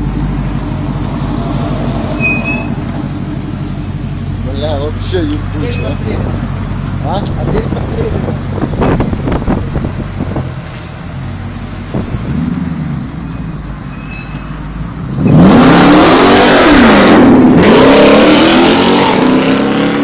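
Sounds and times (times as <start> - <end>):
engine rumbling and accelerating: 0.0 - 20.0.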